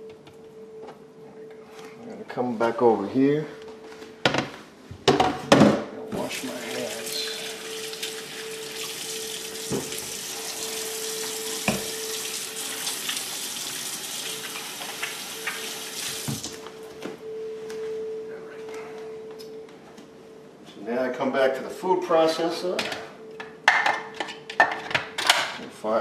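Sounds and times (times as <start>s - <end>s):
hands washing under water: 6.3s - 16.6s
faucet running into metal sink: 6.4s - 16.5s.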